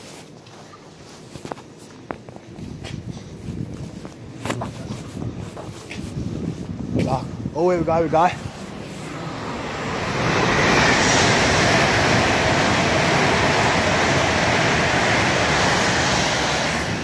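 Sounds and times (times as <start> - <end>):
train passing: 7.1 - 17.0.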